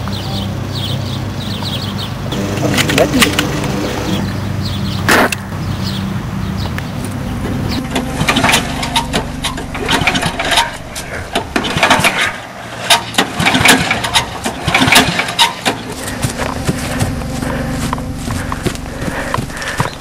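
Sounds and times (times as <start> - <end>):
lawn mower engine running: 2.3 - 4.6, 6.2 - 20.0
sharp clanks and knocks: 7.0 - 20.0.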